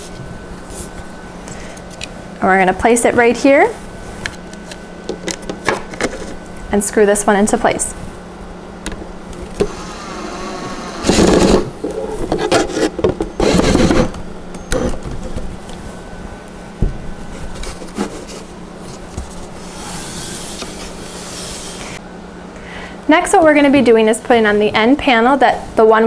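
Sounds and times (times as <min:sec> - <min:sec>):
cordless drill driving a screw: 0:09.6 - 0:11.6
wood rubbing: 0:17.4 - 0:22.0.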